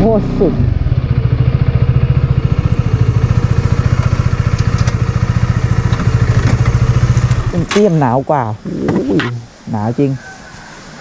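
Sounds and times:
motorcycle engine idling: 0.0 - 8.2.

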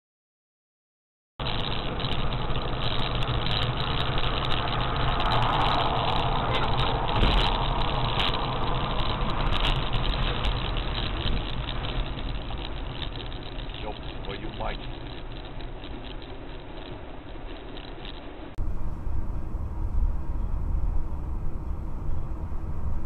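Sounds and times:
car engine hum: 1.4 - 23.0
road noise rushing: 1.4 - 23.0.

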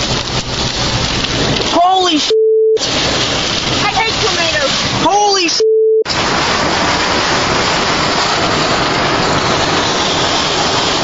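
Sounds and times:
rain: 0.0 - 5.5, 6.1 - 11.0
strong storm wind: 6.1 - 11.0.

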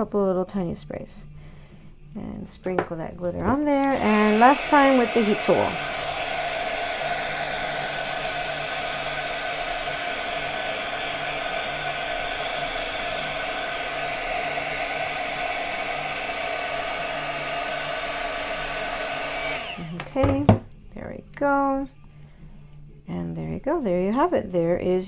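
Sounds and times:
heat tool blowing air: 3.8 - 20.6.

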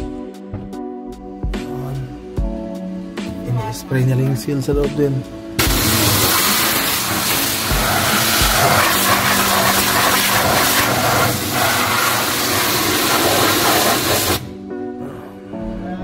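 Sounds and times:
spray gun hissing: 5.6 - 14.5.

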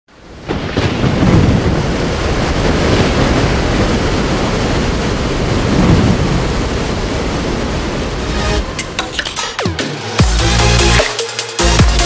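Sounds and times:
wind: 0.1 - 9.5
heavy rain rushing: 0.1 - 12.0.

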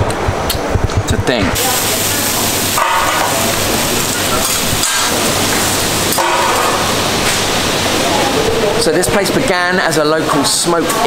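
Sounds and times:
potatoes sizzling on a griddle: 1.6 - 8.4.

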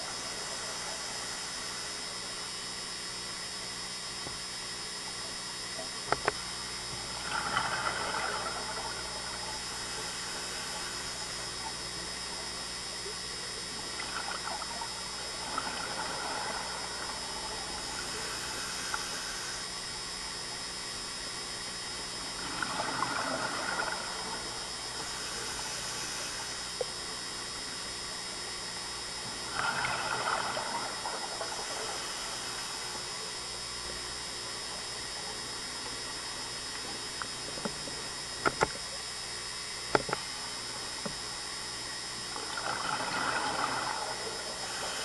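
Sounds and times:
steady hiss: 0.0 - 45.0
exhaled bubbles gurgling: 5.1 - 45.0
diver breathing through regulator: 25.0 - 26.7, 42.6 - 45.0.

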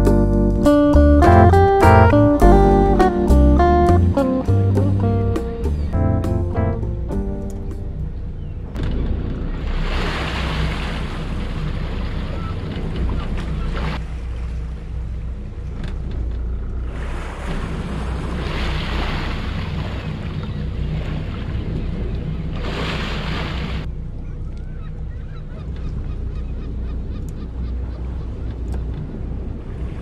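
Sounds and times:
diesel engines rumbling: 0.0 - 30.0.

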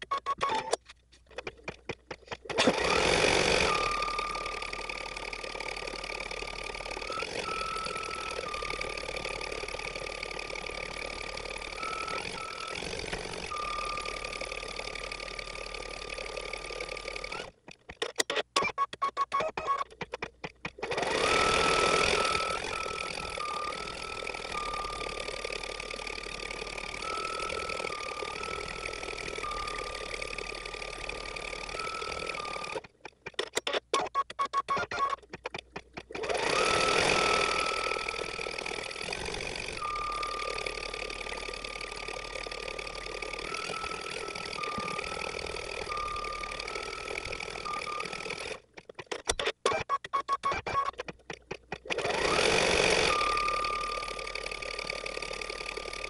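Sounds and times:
embroidery machine motor whining: 2.5 - 17.6, 20.8 - 32.9, 36.0 - 48.6, 51.8 - 56.0.

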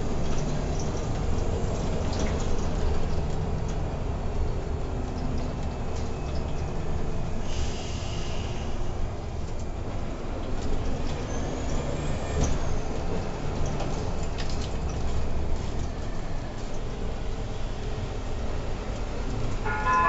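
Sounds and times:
bus engine and road rumble: 0.0 - 20.0
air hiss: 7.4 - 8.8.

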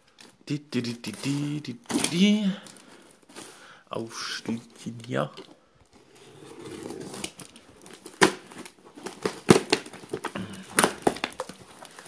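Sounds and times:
packing tape tearing: 6.1 - 12.0.

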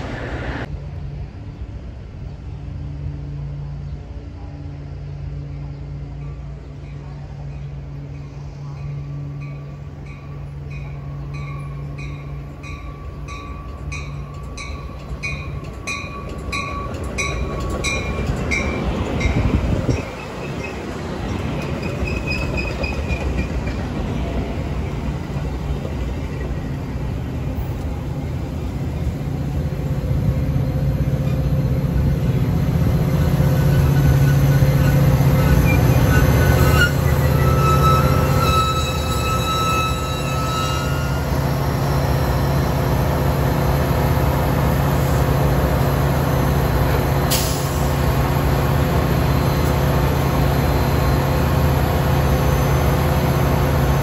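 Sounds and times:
diesel locomotive humming: 0.0 - 54.0
train rolling past: 0.0 - 54.0
wheel squeals: 19.9 - 23.9, 33.1 - 41.4.

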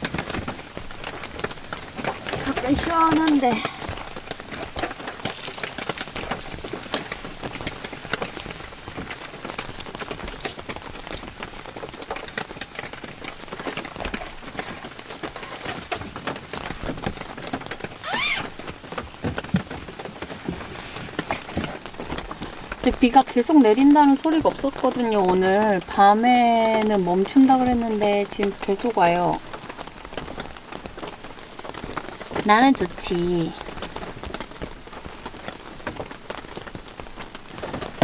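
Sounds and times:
steady rain falling: 0.0 - 38.0
short rising squeak: 18.0 - 18.5.

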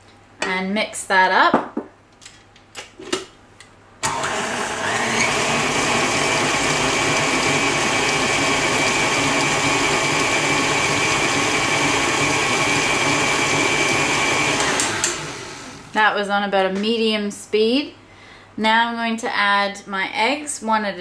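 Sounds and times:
stand mixer running: 4.0 - 15.9.

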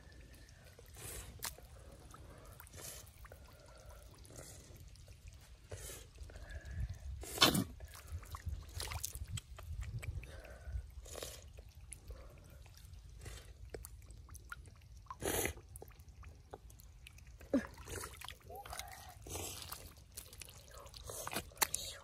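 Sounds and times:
hands scooping muddy water: 0.0 - 22.0.

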